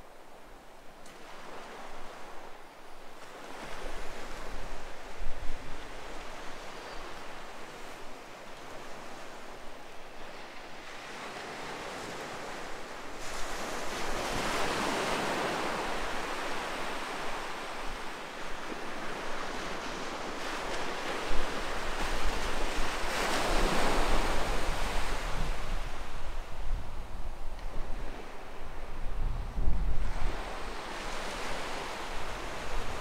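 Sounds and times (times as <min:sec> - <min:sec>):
waves breaking on a beach: 0:00.0 - 0:33.0
wind buffeting microphone: 0:20.4 - 0:33.0.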